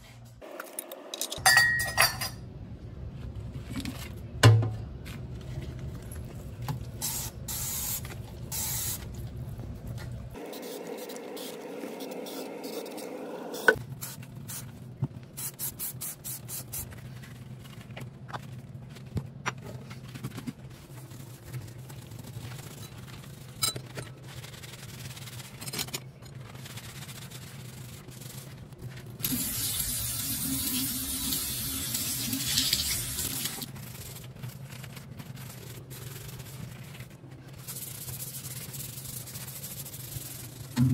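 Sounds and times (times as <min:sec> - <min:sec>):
scouring pad scrubbing a steel sink: 0:26.3 - 0:40.8.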